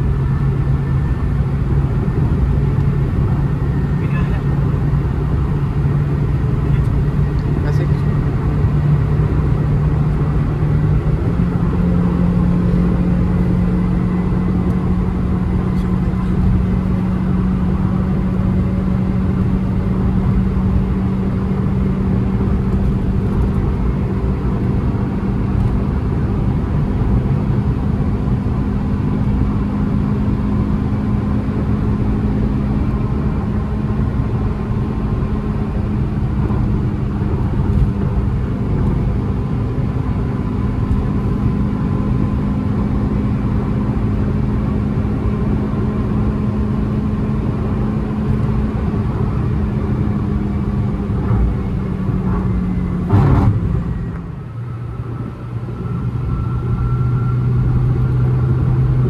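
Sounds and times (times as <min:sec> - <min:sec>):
car engine drone: 0:00.0 - 0:59.0
tyre and road rumble: 0:46.0 - 0:56.6.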